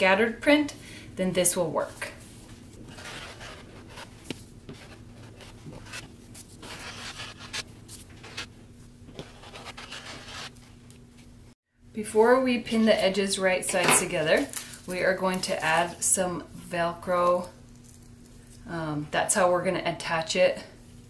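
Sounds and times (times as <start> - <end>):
paper rustling: 2.3 - 8.5, 9.1 - 11.3.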